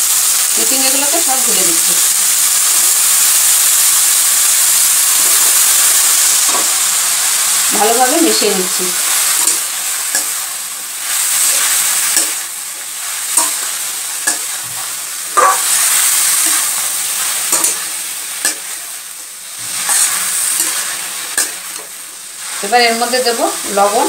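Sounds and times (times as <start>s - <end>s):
vegetables sizzling in oil: 0.0s - 24.0s
metal spatula scraping a pan: 19.6s - 21.6s.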